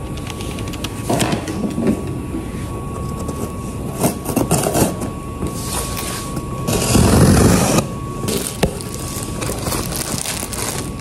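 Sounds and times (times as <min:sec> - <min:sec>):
cardboard parcel rustling: 0:08.3 - 0:11.0.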